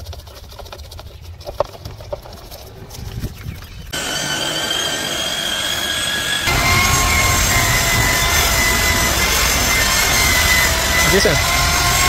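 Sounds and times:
electric motor whining: 4.0s - 12.0s.

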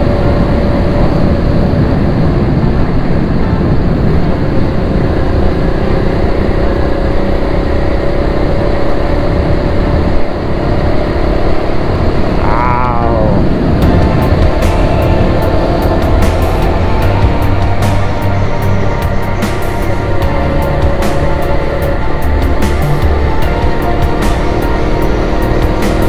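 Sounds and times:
motorcycle engine running: 0.0s - 26.0s
wind rumble on microphone: 0.0s - 26.0s.

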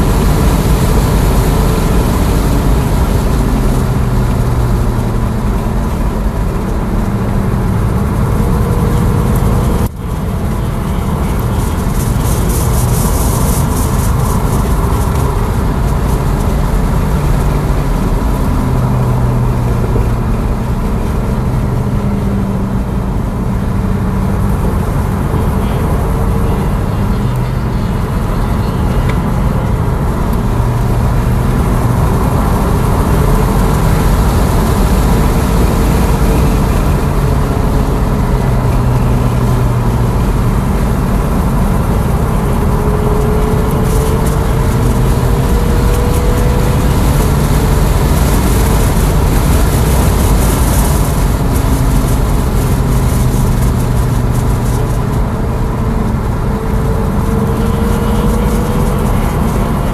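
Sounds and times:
tyre and road rumble: 0.0s - 59.9s
wind noise: 0.0s - 59.9s.

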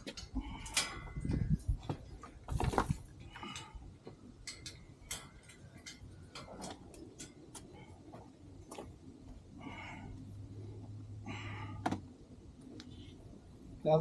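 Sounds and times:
crunchy scrapes of soil and stones: 0.0s - 3.6s.

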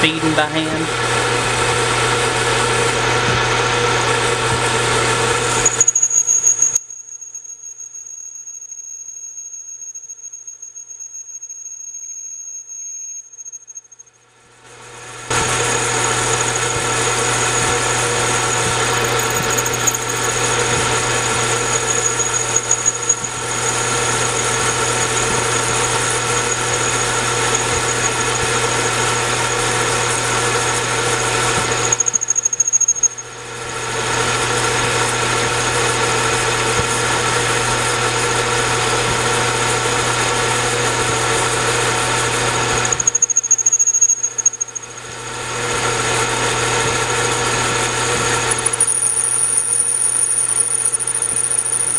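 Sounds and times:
lathe motor hum: 0.0s - 6.8s, 14.7s - 51.9s
high tool squeal: 5.0s - 14.1s, 15.3s - 33.4s, 41.9s - 45.1s, 48.0s - 51.9s
cutting tool on metal: 15.3s - 29.6s.

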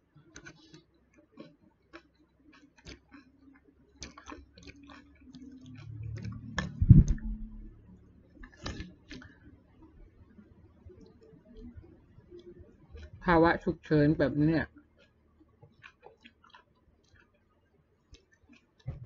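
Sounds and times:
low thump: 6.8s - 7.7s.

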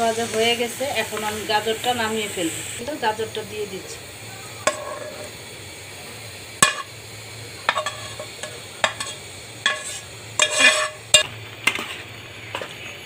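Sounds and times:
spoon scraping metal pan: 4.6s - 5.3s, 7.7s - 13.0s.

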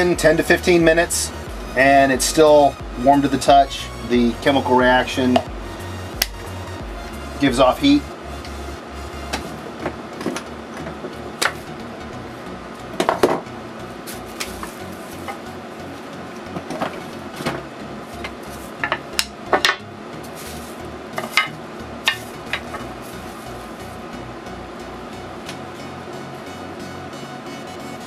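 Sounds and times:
wooden pieces knocking on bench: 13.0s - 13.4s, 18.8s - 19.8s, 21.2s - 22.8s.

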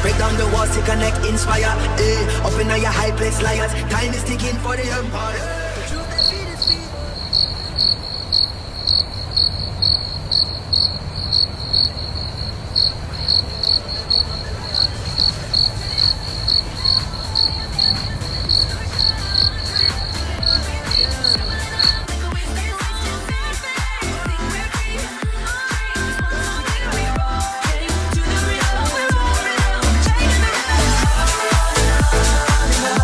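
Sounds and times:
crickets chirping: 5.9s - 23.5s.

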